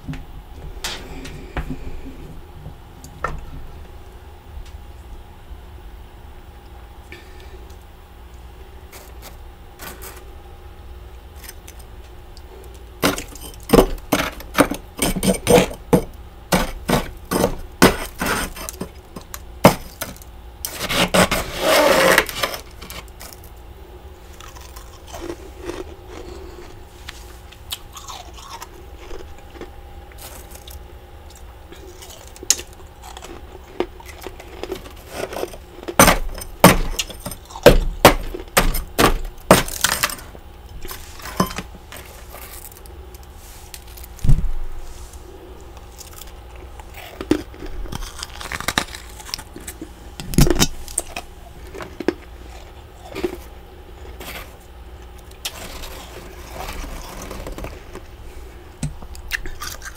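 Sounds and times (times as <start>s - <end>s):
metal spoon scraping frost: 8.9s - 10.3s, 16.5s - 23.4s, 55.4s - 58.0s.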